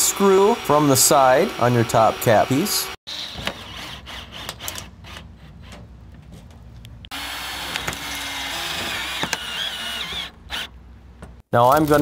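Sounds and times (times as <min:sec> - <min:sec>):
cordless drill driving screw: 0:07.1 - 0:10.7.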